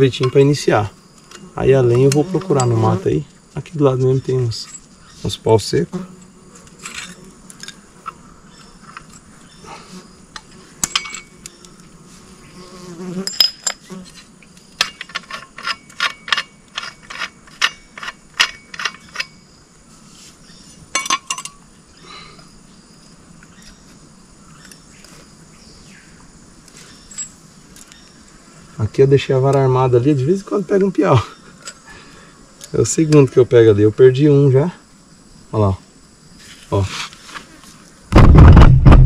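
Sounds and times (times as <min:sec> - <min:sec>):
insects buzzing: 0:00.0 - 0:39.0
sharp cracks and knocks: 0:13.5 - 0:19.3, 0:38.1 - 0:39.0.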